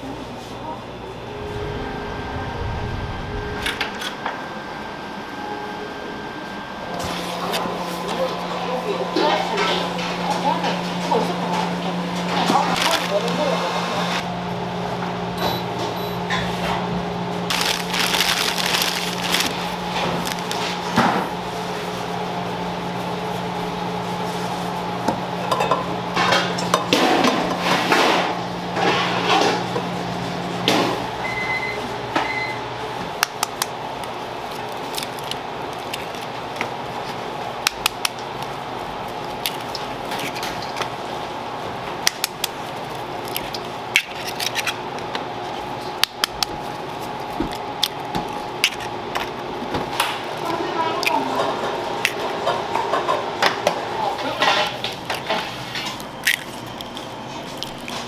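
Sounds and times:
steady hum: 0.0 - 27.6
plastic bag rustling: 12.7 - 13.4, 17.5 - 21.0.

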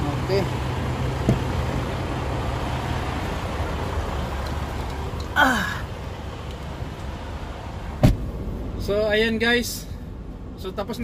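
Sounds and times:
truck engine idling: 0.0 - 10.8
person sighing: 5.3 - 6.0.

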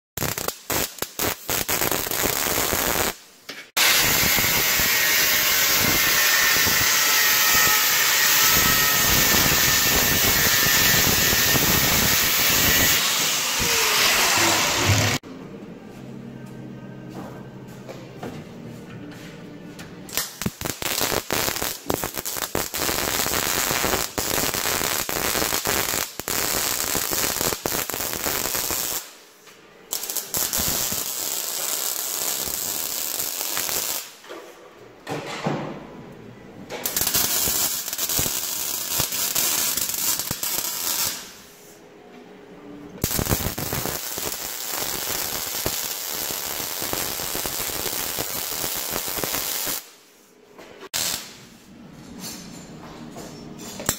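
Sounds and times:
welding arc crackling: 0.2 - 3.2, 3.8 - 15.2, 20.1 - 29.2, 29.9 - 34.2, 36.8 - 41.4, 43.0 - 50.0, 50.9 - 51.4.

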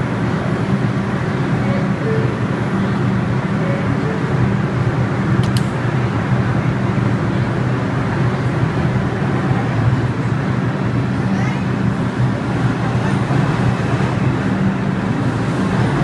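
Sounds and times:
train equipment low drone: 0.0 - 16.0
train doors shutting clack: 5.3 - 6.1.

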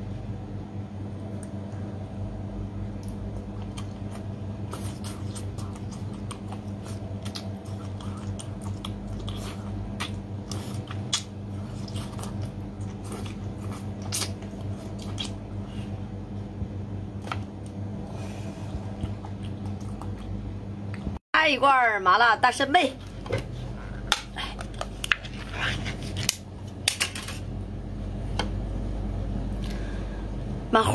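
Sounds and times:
steady low hum: 0.0 - 30.9
wet sucking and chewing: 3.0 - 16.0, 18.1 - 20.4.

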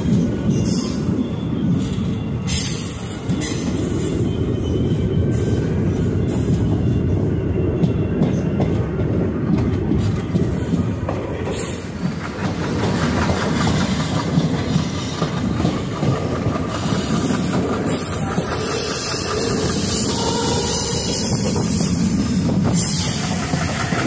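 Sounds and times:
train rumble: 0.0 - 24.0
wheels clacking over rail joints: 7.8 - 24.0
high-pitched wheel squeal: 17.0 - 22.1.

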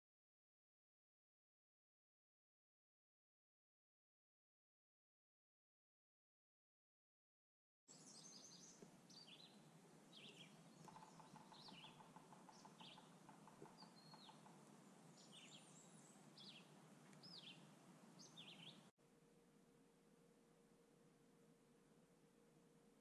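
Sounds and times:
faint low bird trill: 7.9 - 18.9
songbirds chirping: 7.9 - 18.9.

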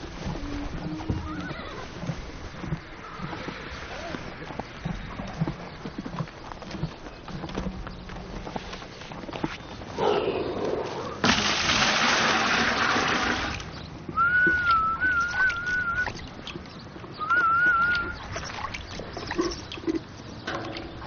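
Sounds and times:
water splashing into plastic tub: 11.2 - 13.7
warbling whistle: 14.2 - 16.1, 17.2 - 18.2.

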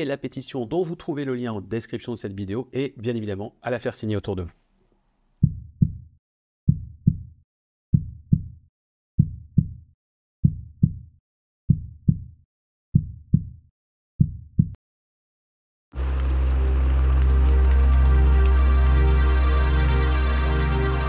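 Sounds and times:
heartbeat thumps: 5.4 - 6.1, 6.7 - 7.3, 7.9 - 8.6, 9.2 - 9.8, 10.4 - 11.1, 11.7 - 12.3, 13.0 - 13.6, 14.2 - 14.8.

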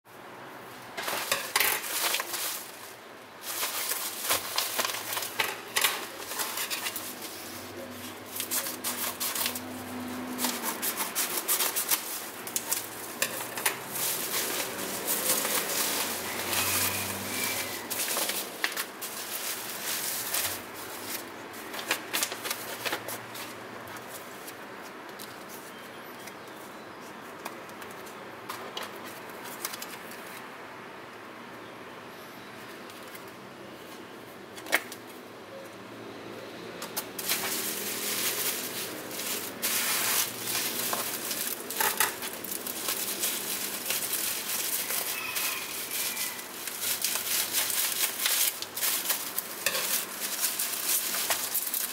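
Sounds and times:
plastic bag and bubble wrap crinkling: 0.9 - 26.4, 36.8 - 51.9.

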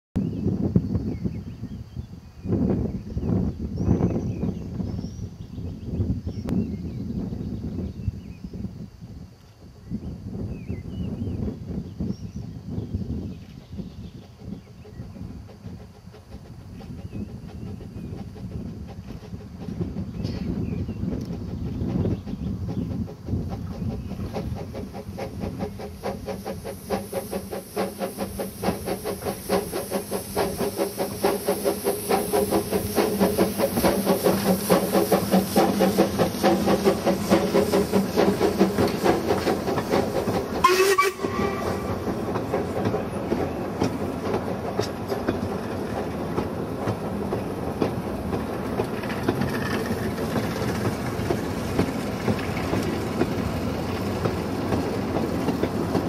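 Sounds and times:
steam locomotive chuffing: 13.1 - 56.0
train wheels clattering over rail joints: 14.1 - 56.0.

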